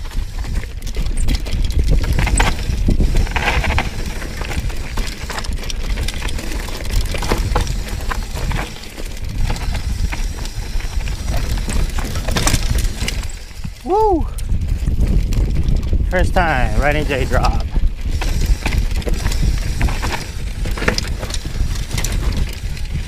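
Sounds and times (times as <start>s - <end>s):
bike rattling over bumps: 0.0s - 23.0s
tyres rolling over dirt: 0.0s - 23.0s
wind rumble on microphone: 0.0s - 23.0s.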